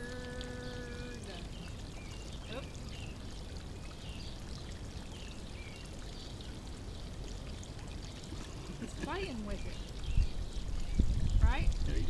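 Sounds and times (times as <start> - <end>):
small birds chirping: 0.0 - 12.0
water pouring into a pond: 0.0 - 12.0.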